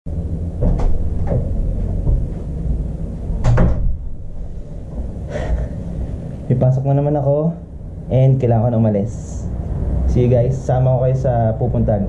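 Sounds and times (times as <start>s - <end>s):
low rumble: 0.1s - 12.0s
loud thump: 0.6s - 2.3s, 3.4s - 4.2s
short knocks: 0.6s - 2.4s.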